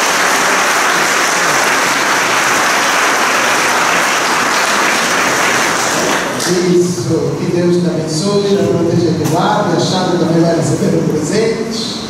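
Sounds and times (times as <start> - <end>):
congregation applauding: 0.0 - 6.8.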